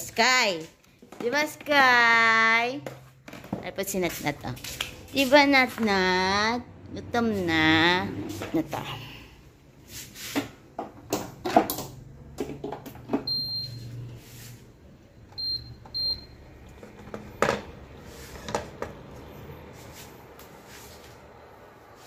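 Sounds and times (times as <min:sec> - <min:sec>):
cooker control panel beeping: 0:13.2 - 0:14.1, 0:15.3 - 0:16.7.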